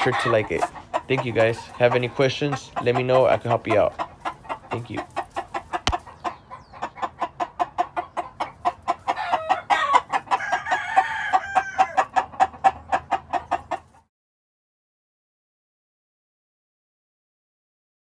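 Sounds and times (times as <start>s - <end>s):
rooster clucking rapidly: 0.0s - 14.1s
rooster crowing: 9.2s - 12.1s.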